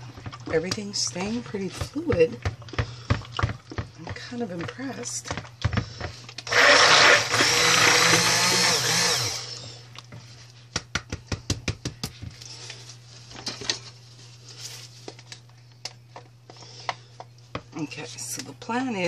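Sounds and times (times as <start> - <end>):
immersion blender running: 6.4 - 9.8.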